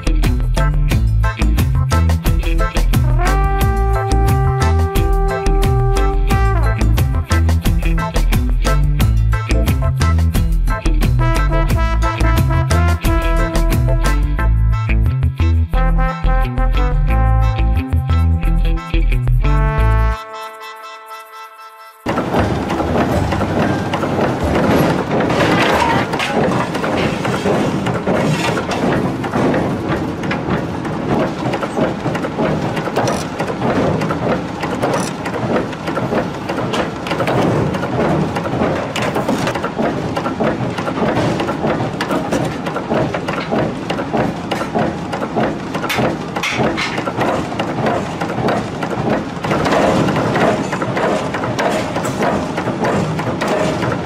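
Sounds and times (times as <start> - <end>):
heavy forging machinery rumbling: 22.1 - 54.0
metal knocks clattering: 22.1 - 54.0.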